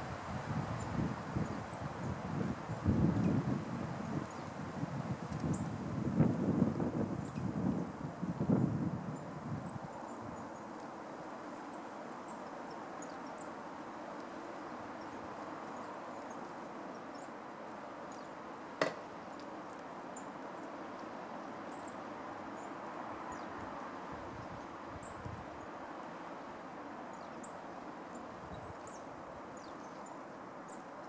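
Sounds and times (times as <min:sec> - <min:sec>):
woodland background: 0:00.0 - 0:31.0
knock on wooden box: 0:18.8 - 0:19.0.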